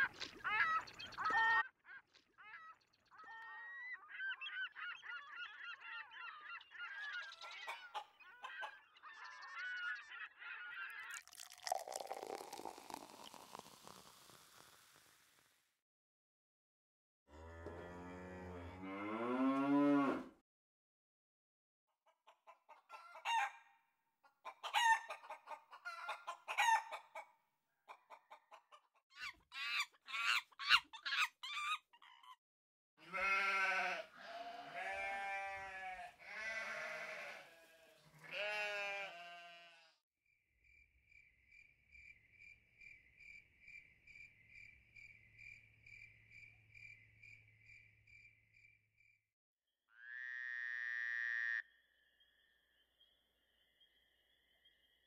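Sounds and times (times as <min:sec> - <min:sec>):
chickens clucking: 0:07.4 - 0:08.8, 0:22.1 - 0:23.5, 0:24.4 - 0:27.3, 0:27.9 - 0:30.8
long drawn-out animal calls: 0:33.0 - 0:40.0.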